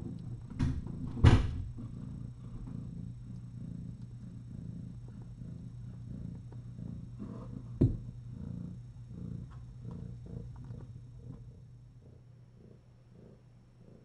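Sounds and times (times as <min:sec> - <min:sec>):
cat purring: 0:00.0 - 0:14.0.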